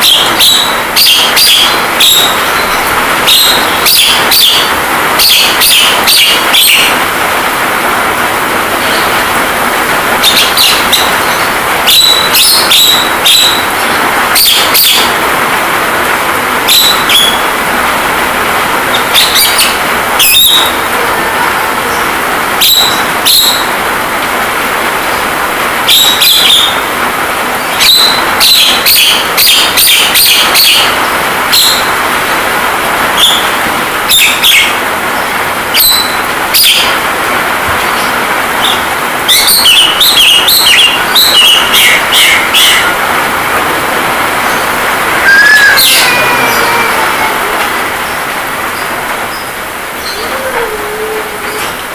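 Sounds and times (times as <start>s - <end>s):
bird chirps and whistles: 0.0s - 6.9s, 10.2s - 15.2s, 16.7s - 17.4s, 22.6s - 23.7s, 27.7s - 30.9s, 35.8s - 36.9s, 45.2s - 46.8s
rain hiss: 0.0s - 51.9s.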